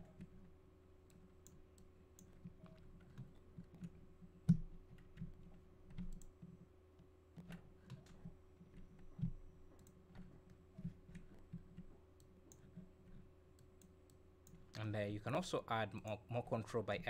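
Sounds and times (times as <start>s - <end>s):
faint steady hum: 0.0s - 17.0s
computer mouse clicks: 1.0s - 6.6s, 7.4s - 14.8s.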